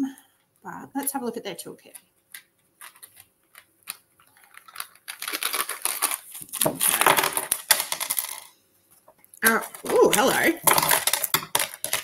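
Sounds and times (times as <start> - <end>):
pouch rustling open: 2.3 - 7.2.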